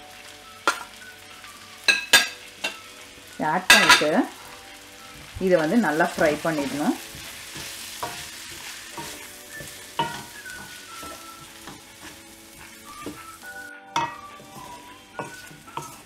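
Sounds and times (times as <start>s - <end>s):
vegetables sizzling in oil: 0.0s - 16.0s
wooden spatula scraping a pan: 5.0s - 16.0s.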